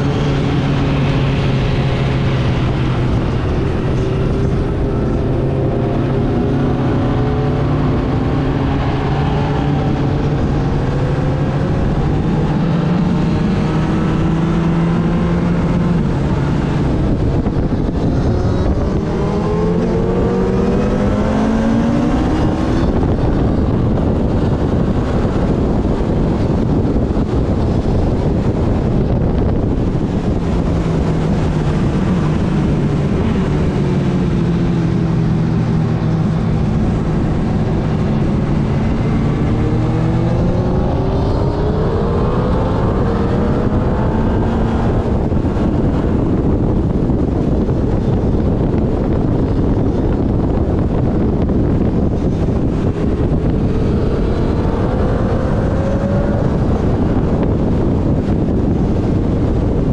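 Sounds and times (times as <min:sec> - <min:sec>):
motorcycle engine at speed: 0:00.0 - 0:59.9
wind noise on microphone: 0:00.0 - 0:59.9.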